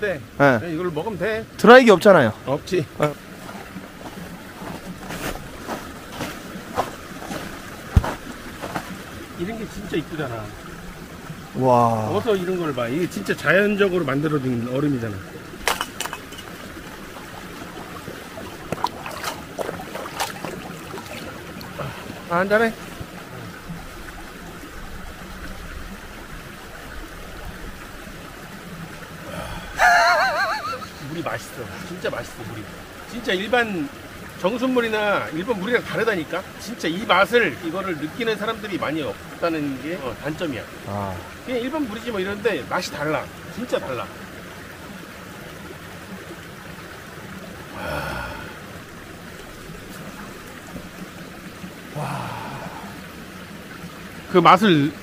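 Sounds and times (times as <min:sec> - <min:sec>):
stream rushing over rocks: 0:00.0 - 0:55.0
man exhaling ah: 0:29.2 - 0:30.0, 0:47.7 - 0:48.6, 0:51.9 - 0:53.0.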